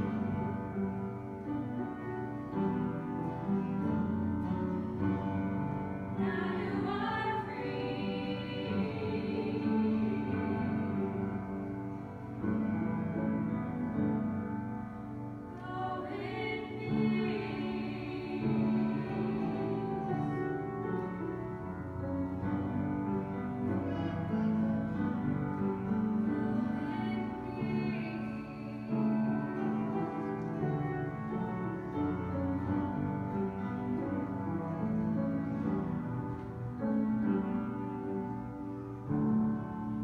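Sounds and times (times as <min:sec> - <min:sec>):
upright piano: 0:00.0 - 0:40.0
women singing a hymn: 0:06.0 - 0:12.0, 0:15.5 - 0:21.5, 0:22.6 - 0:33.7.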